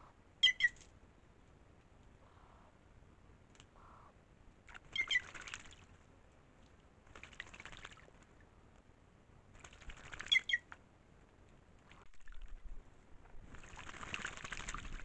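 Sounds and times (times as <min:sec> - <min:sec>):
bird splashing and wing flutter: 0:04.6 - 0:08.9, 0:09.5 - 0:10.9, 0:11.8 - 0:15.0.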